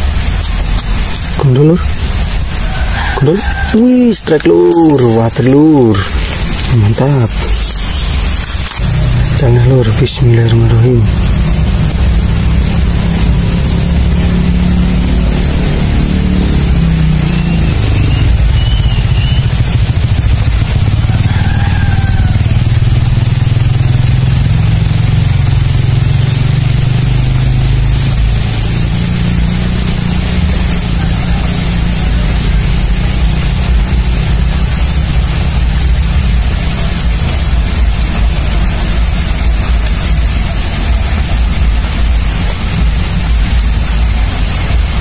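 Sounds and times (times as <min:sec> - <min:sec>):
engine running: 0:00.0 - 0:45.0
short high chirps: 0:17.2 - 0:19.5.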